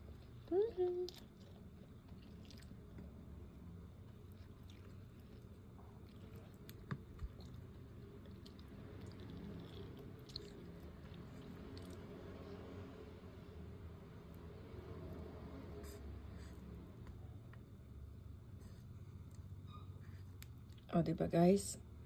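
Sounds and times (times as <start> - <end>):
chewing food: 0.0 - 12.8.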